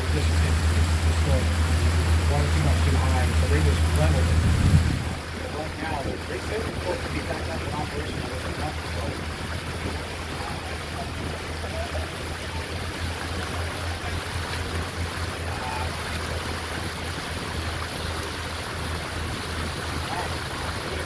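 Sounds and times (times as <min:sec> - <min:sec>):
boat motor humming: 0:00.0 - 0:21.0
water washing: 0:00.0 - 0:21.0
wind noise: 0:03.2 - 0:12.7.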